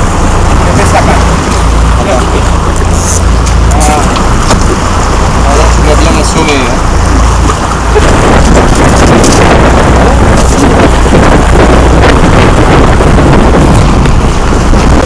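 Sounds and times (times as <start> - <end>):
boat engine running: 0.0 - 15.0
wind rumble on microphone: 0.0 - 15.0.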